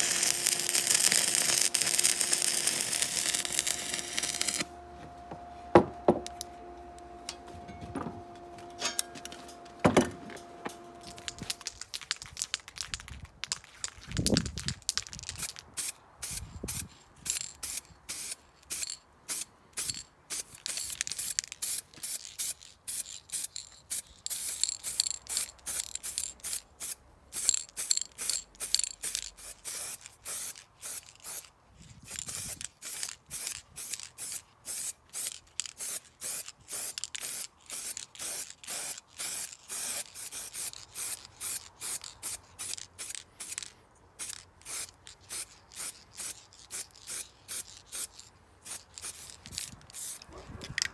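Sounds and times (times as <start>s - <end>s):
spray paint can hissing: 0.0s - 4.7s, 11.0s - 50.9s.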